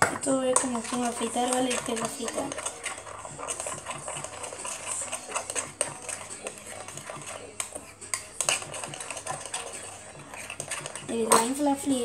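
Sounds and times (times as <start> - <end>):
utensil stirring slime in a bowl: 0.0 - 12.0.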